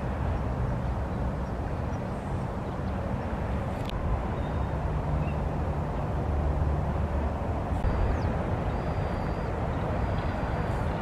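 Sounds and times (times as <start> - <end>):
distant road traffic rumble: 0.0 - 11.0
faint high whistles: 7.9 - 10.9.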